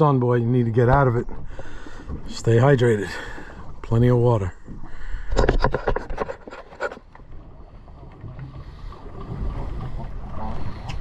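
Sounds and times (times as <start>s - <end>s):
water sloshing against hull: 0.0s - 11.0s
sharp clicks and knocks: 5.3s - 7.2s.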